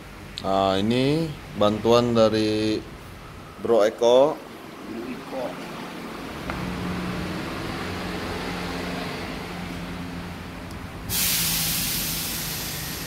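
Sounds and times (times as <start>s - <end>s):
mechanical hum: 0.0s - 13.0s
loud even hiss: 11.1s - 13.0s.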